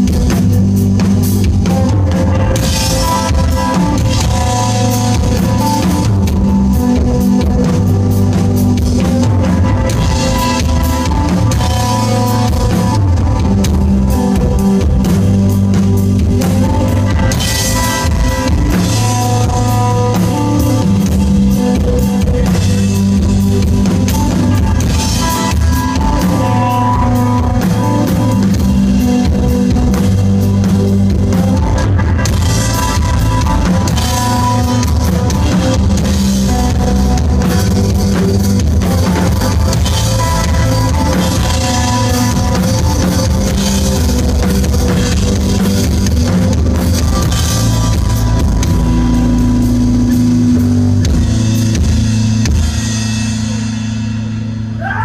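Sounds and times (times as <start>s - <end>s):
bass guitar: 0.0s - 55.0s
drum kit with cymbals: 0.0s - 55.0s
electric guitar long notes: 0.0s - 55.0s.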